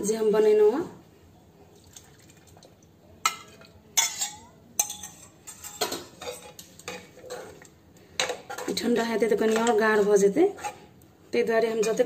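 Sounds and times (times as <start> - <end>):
steel ladle clinking against pots: 3.3 - 8.8.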